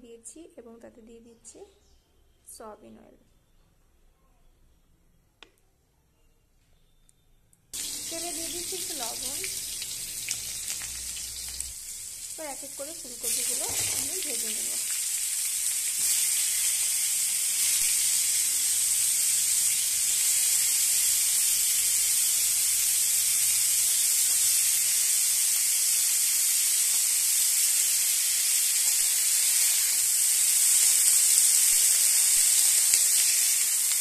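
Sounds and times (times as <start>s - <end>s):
cauliflower sizzling in hot oil: 7.8s - 34.0s.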